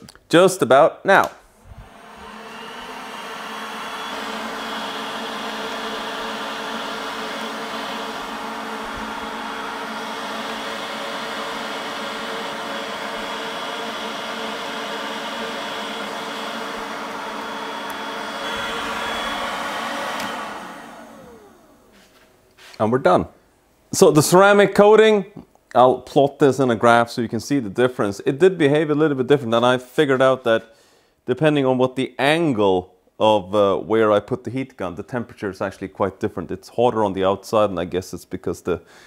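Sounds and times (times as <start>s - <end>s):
fan winding down whine: 1.6s - 22.2s
heat gun fan humming: 1.6s - 22.8s.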